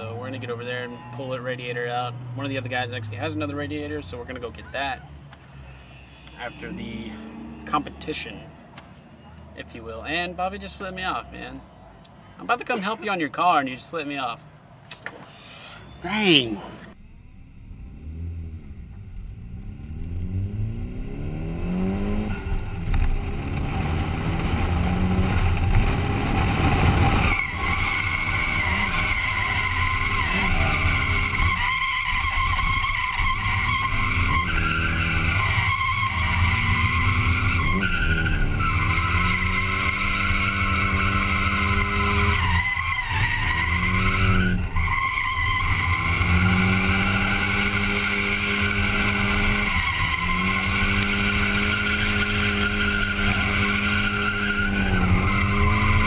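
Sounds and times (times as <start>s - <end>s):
car engine revving: 0.0s - 11.3s, 16.6s - 56.0s
tyres squealing: 27.1s - 56.0s.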